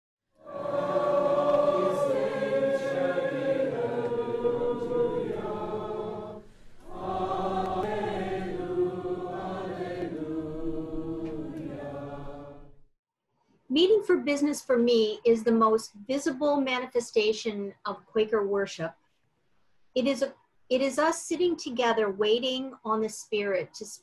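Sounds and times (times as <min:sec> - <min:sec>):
choir singing long notes: 0:00.4 - 0:12.8.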